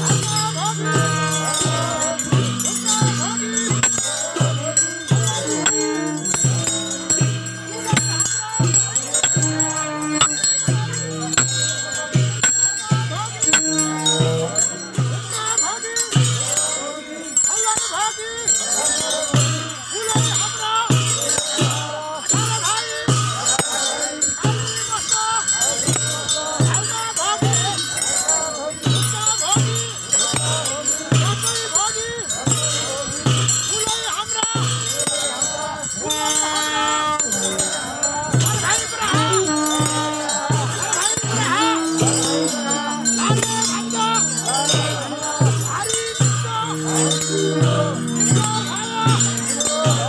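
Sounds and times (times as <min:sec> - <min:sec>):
low repeating pulse: 0:00.0 - 0:15.4, 0:35.0 - 0:50.0
crowd voices: 0:00.0 - 0:50.0
hand bells ringing: 0:00.0 - 0:50.0
low beat: 0:38.5 - 0:50.0
long held tone: 0:41.3 - 0:50.0.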